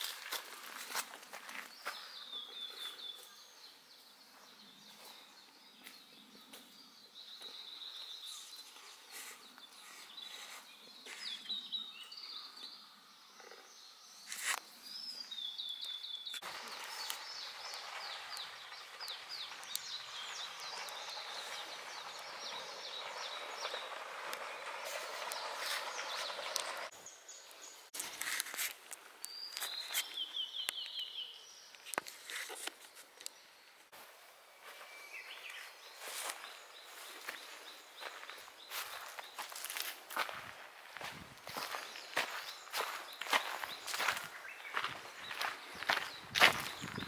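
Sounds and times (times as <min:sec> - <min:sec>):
steady hiss with quick chirps: 0:16.3 - 0:26.9
songbirds singing trilled phrases: 0:41.0 - 0:47.0.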